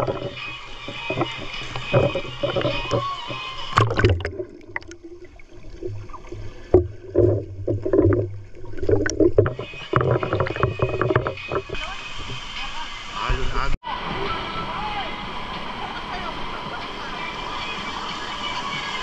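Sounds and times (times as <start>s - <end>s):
river water sloshing and splashing: 0.0s - 13.2s.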